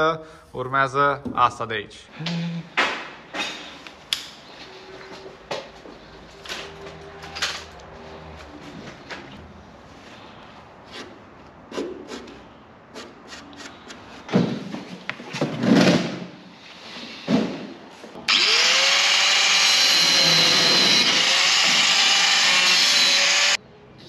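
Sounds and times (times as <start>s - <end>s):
handheld power tool spinning: 18.3s - 23.6s.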